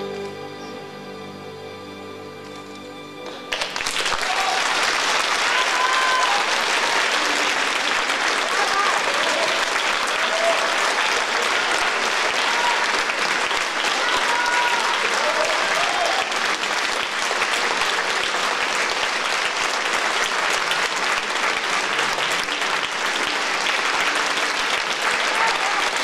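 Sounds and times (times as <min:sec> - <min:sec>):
audience applauding: 0:03.2 - 0:26.0.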